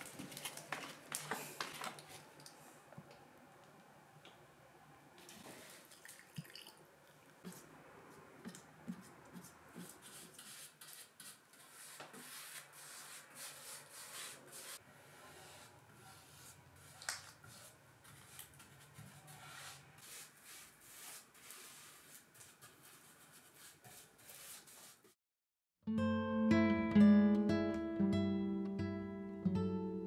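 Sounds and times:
paint stirred in a can: 8.4s - 25.1s.

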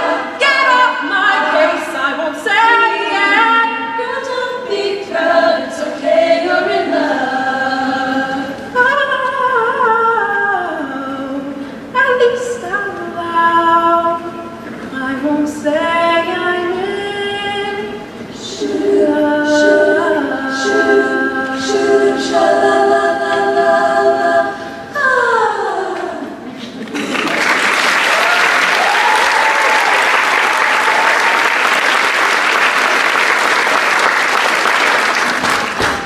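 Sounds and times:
women's choir singing a cappella: 0.0s - 26.8s.

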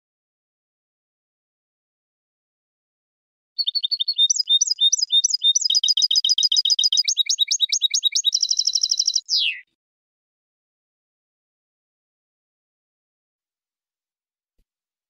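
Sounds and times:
goldfinch twittering song: 3.6s - 9.6s.

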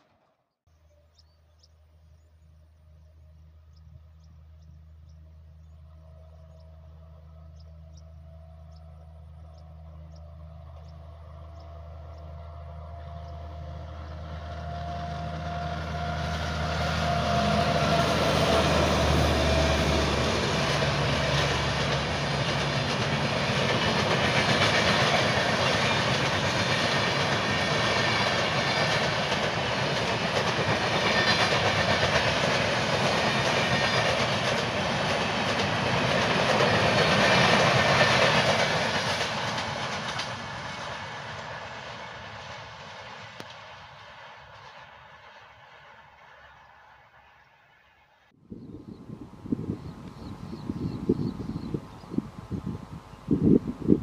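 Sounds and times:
electric locomotive hum: 0.0s - 54.0s
train coaches rushing past: 11.4s - 48.0s.

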